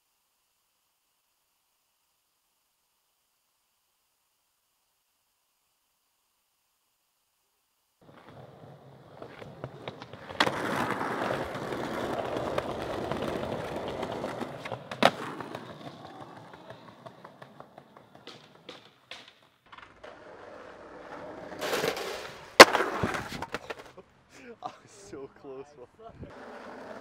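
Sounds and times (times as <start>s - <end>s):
skateboard clack: 8.0s - 24.0s
skateboard cracking: 8.0s - 24.0s, 26.3s - 27.0s
skateboard wheels rolling on concrete: 8.0s - 25.0s, 26.0s - 27.0s.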